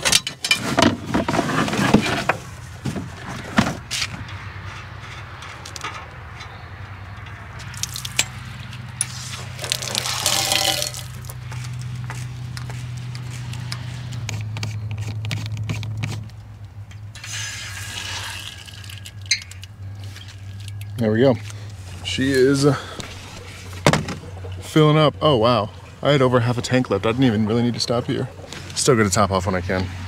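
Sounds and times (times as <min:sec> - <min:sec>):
water rushing from tap: 0:09.6 - 0:11.1, 0:17.2 - 0:19.1.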